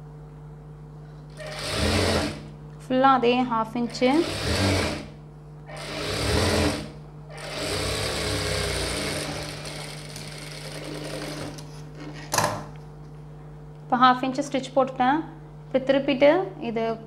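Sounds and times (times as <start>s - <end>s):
sewing machine stitching: 1.3s - 2.5s, 3.9s - 11.6s.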